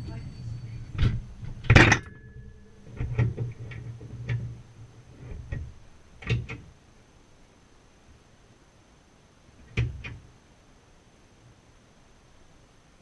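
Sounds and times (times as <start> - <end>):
dishwasher hum: 0.0 - 6.6.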